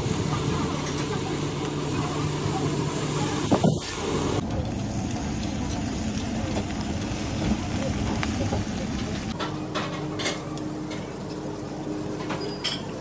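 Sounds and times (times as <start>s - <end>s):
fish sizzling on a grill: 0.0s - 9.4s.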